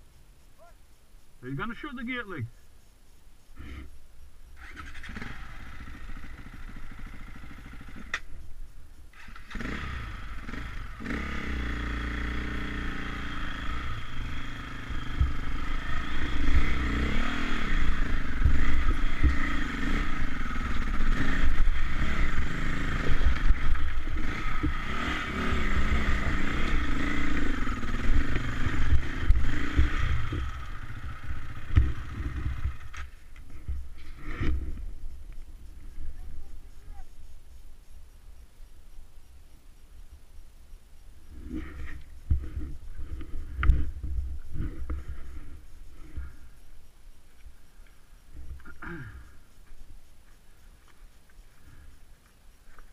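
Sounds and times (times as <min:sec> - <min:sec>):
motorcycle engine revving: 0:04.6 - 0:08.3, 0:09.1 - 0:35.0, 0:41.3 - 0:46.5.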